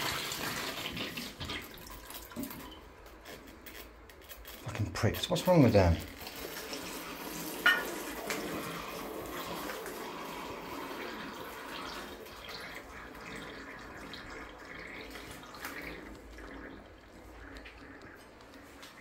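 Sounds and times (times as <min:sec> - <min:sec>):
water running from bath tap: 0:00.0 - 0:19.0.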